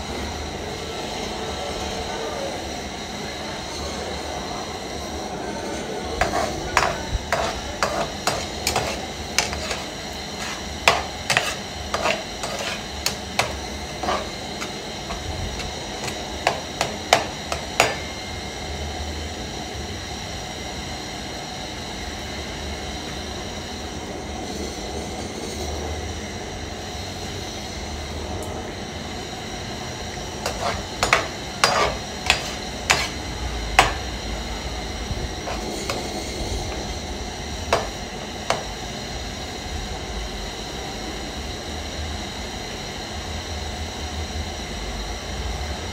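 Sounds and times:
frying hiss: 6.2 - 18.2
metal skimmer scraping frying pan: 6.2 - 18.2, 30.4 - 34.0, 35.4 - 36.9.

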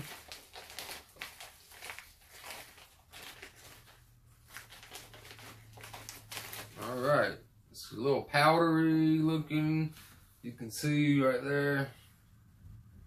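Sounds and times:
plastic packet crinkling: 0.0 - 7.0.

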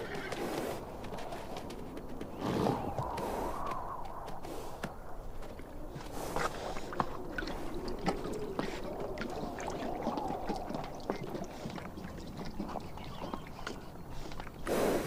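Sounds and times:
horses drinking water: 0.0 - 15.0.

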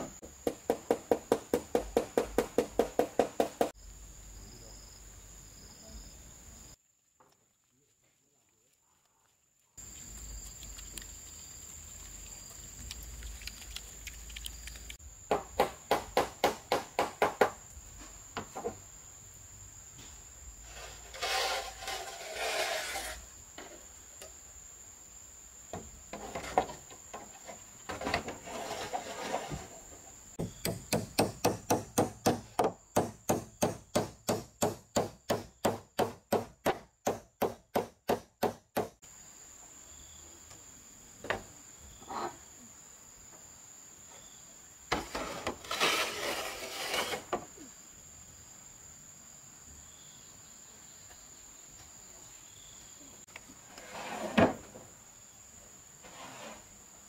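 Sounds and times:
cricket trill: 0.0 - 57.0
scraping on metal roof: 20.7 - 23.2, 26.1 - 30.0, 44.9 - 47.4, 53.7 - 54.8
hammer driving nails into metal roof: 30.4 - 39.0.

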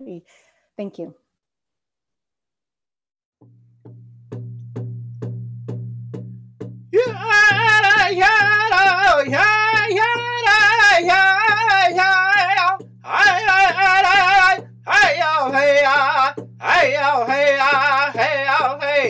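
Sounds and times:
steady drum beat: 5.6 - 19.0.

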